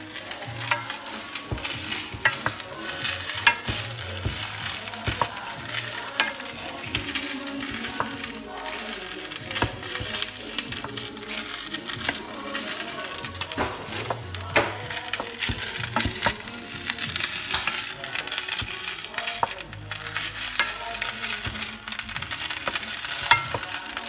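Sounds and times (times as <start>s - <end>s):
food sizzling in a pot: 0.0s - 24.0s
utensil knocking against pot: 0.6s - 8.4s, 13.5s - 24.0s.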